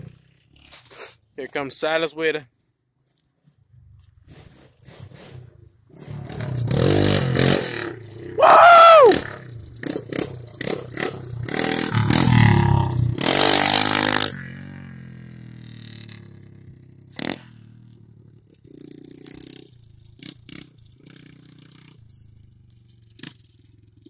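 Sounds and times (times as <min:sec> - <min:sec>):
motorbike engine revving: 0:00.0 - 0:00.8, 0:04.2 - 0:24.0
high rising and falling cry: 0:08.3 - 0:09.4.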